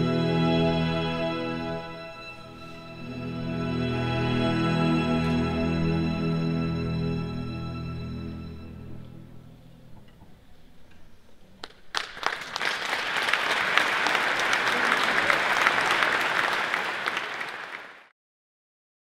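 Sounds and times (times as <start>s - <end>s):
audience applauding: 11.6s - 18.1s.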